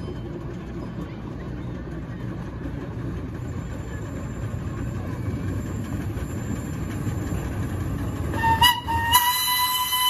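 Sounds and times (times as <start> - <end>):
miniature train rumbling on rails: 0.0 - 10.0
steam whistle: 8.3 - 10.0.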